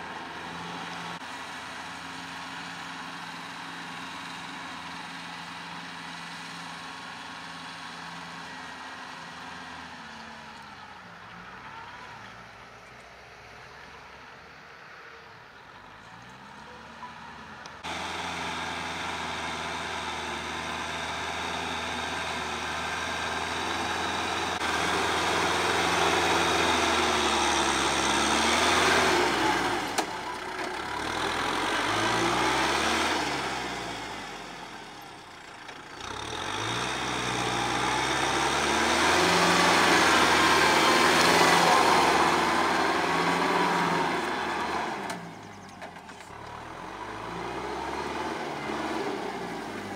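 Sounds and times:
tractor diesel engine under load: 0.0 - 49.9
rotary tiller in soil: 17.8 - 49.9.

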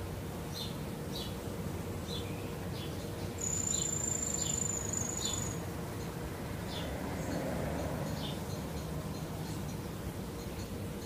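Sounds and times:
insect singing high steady note: 3.4 - 5.6.

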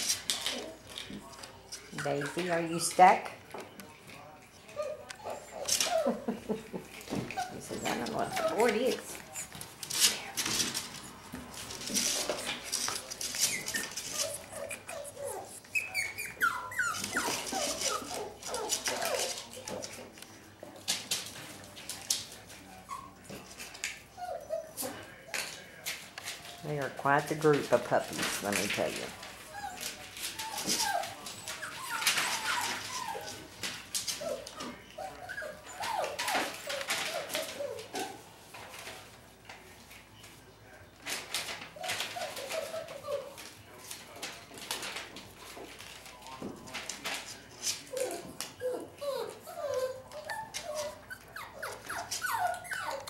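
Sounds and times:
puppies whimpering: 1.8 - 3.1, 4.4 - 11.2, 12.1 - 20.1, 22.6 - 25.6, 28.3 - 38.3, 41.8 - 43.6, 47.8 - 53.0
newspaper crackling: 7.8 - 15.5, 41.0 - 48.2.

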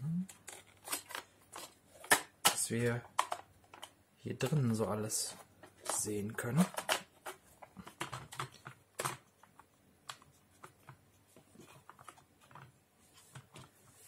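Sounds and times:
hard plastic toy clicks and clatter: 0.3 - 4.0, 5.6 - 10.8.

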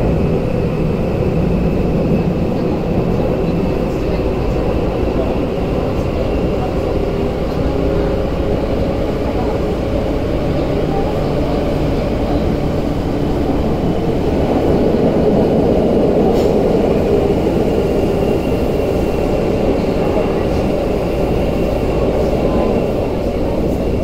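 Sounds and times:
subway train rumble in tunnel: 0.0 - 24.0.

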